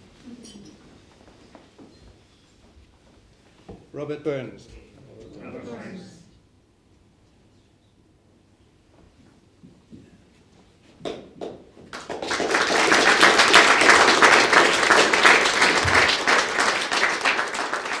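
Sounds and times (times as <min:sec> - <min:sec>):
audience applauding: 0:11.9 - 0:18.0.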